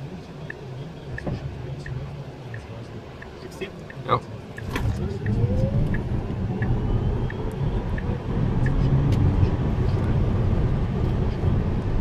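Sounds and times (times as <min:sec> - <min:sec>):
tyre and wind noise in car: 0:04.6 - 0:12.0.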